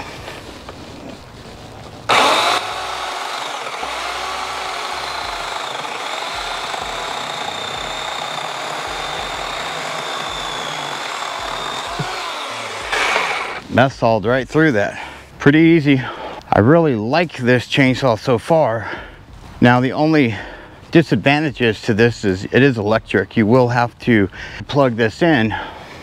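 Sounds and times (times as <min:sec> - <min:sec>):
electric chainsaw cutting wood: 0:02.1 - 0:13.7.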